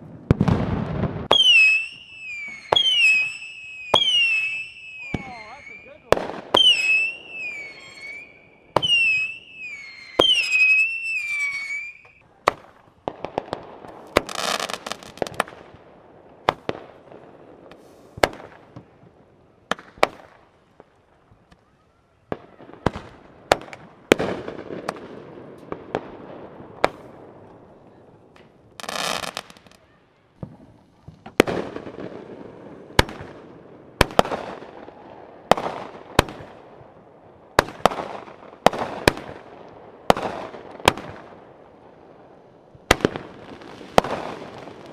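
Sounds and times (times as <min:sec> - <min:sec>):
fireworks bangs and pops: 0:00.0 - 0:44.9
fireworks crackling: 0:00.0 - 0:44.9
warbling high whistle: 0:06.6 - 0:12.2
fireworks hissing whooshes: 0:17.5 - 0:18.8.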